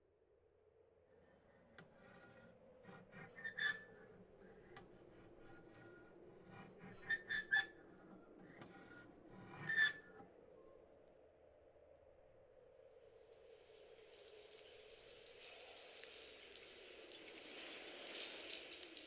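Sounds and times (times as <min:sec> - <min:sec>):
metallic creaks and clinks: 0:01.8 - 0:10.2.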